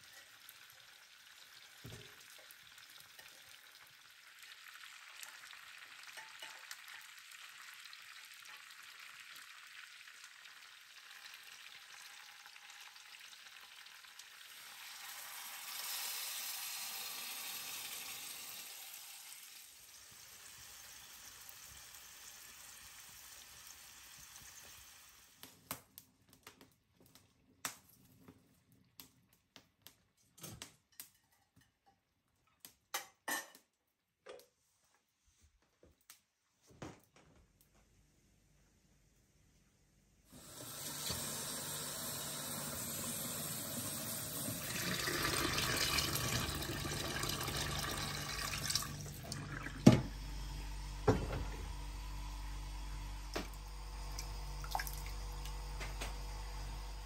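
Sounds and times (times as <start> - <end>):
food sizzling in a pan: 0.0 - 25.8, 40.3 - 57.0.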